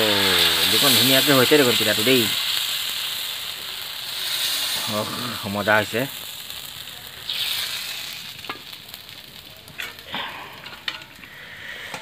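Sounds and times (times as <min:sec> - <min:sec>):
batter sizzling in hot oil: 0:00.0 - 0:11.9.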